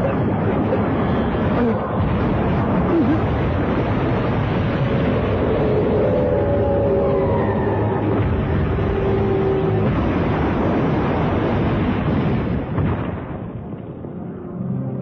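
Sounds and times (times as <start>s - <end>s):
rumble of falling wreckage: 0.0s - 14.4s.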